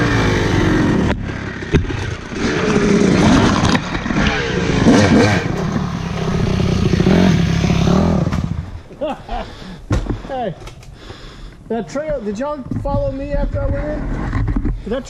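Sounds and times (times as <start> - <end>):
dirt bike engine revving: 0.0 - 8.8.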